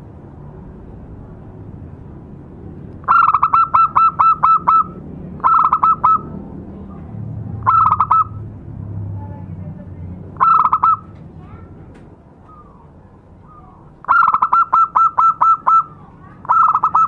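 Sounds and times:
dove cooing: 3.0s - 6.4s, 7.6s - 8.4s, 10.4s - 11.1s, 12.5s - 17.0s.

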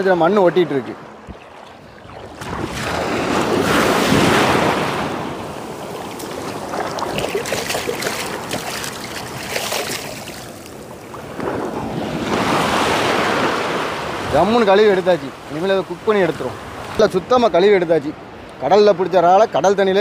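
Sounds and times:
small waves washing in shallows: 0.0s - 17.4s
hands splashing in water: 5.9s - 10.8s.

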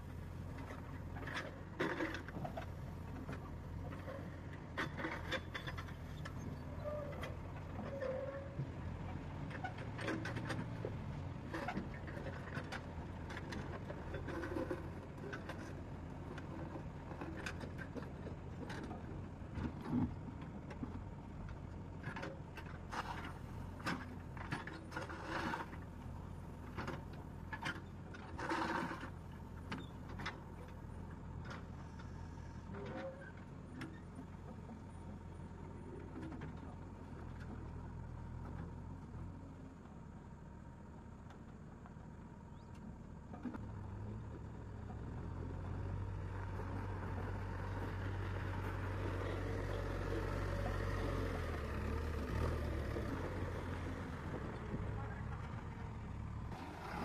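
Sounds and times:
diesel engine running: 0.0s - 57.0s
bucket scraping through gravel: 56.6s - 57.0s.

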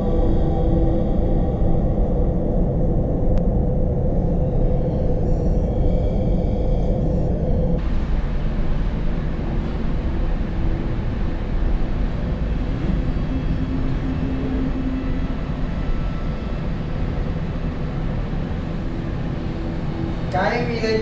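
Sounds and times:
air conditioner rumbling: 0.0s - 21.0s
faint hum: 0.0s - 21.0s.

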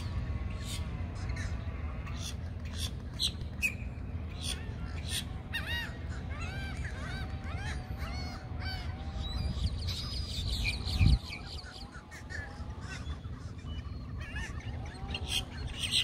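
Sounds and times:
water birds calling: 0.0s - 16.0s
wind rumble on microphone: 7.2s - 16.0s.

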